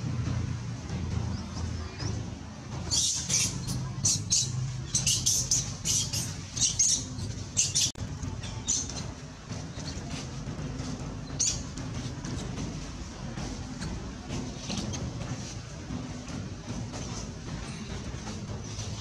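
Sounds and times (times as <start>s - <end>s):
macaques squeaking: 2.0s - 12.7s, 13.6s - 15.4s.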